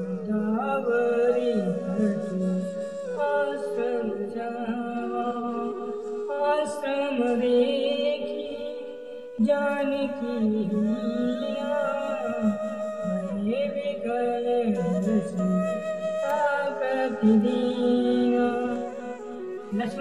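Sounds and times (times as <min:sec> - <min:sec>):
person singing a chant: 0:00.0 - 0:20.0.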